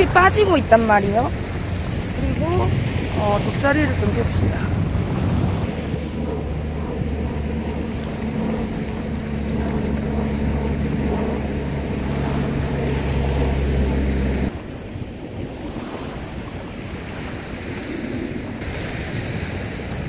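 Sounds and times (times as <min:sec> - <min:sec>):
steady low hum: 0:00.0 - 0:15.2
surf washing on beach: 0:00.0 - 0:20.0
wind on microphone: 0:00.0 - 0:20.0.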